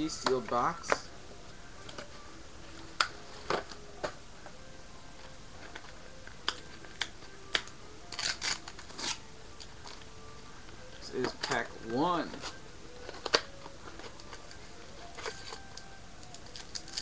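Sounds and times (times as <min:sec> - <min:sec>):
foil wrapper crinkling: 0:08.1 - 0:09.3, 0:11.2 - 0:17.0.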